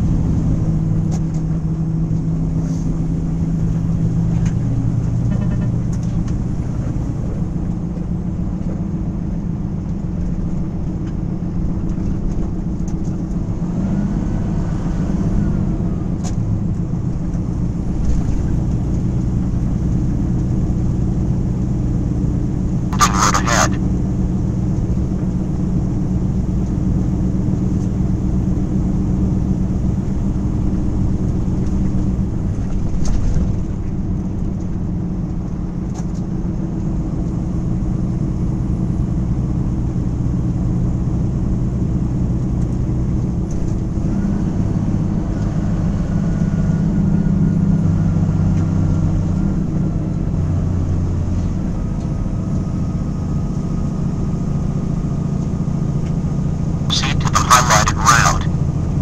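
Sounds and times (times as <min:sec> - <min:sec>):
truck engine drone: 0:00.0 - 0:10.8, 0:11.4 - 0:25.8, 0:56.9 - 0:58.8.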